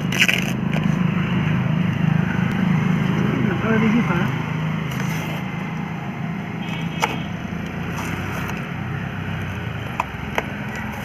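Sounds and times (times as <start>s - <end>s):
cardboard packaging handled: 4.8s - 5.6s, 6.6s - 9.0s.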